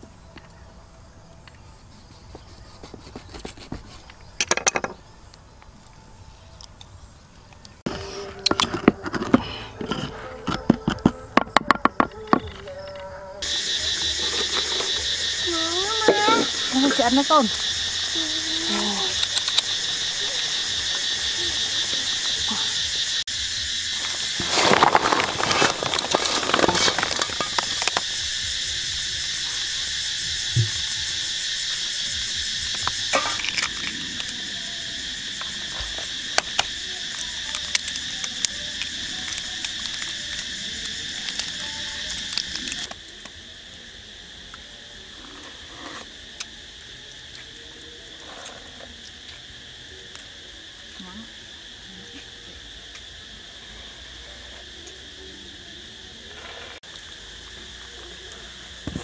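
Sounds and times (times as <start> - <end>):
insects trilling: 0.0 - 59.0.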